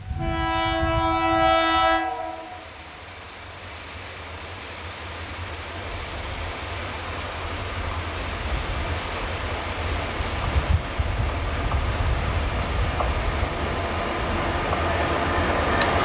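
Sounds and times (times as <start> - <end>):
locomotive air horn chord: 0.0 - 2.8
train rumbling: 0.0 - 16.0.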